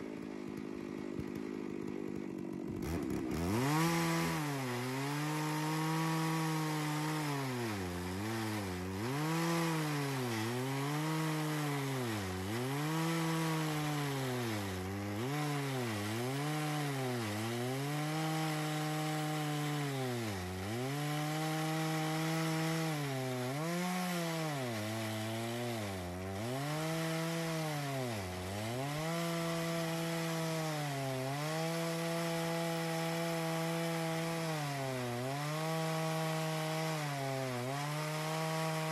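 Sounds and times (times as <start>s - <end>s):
chainsaw cutting wood: 0.0s - 38.9s.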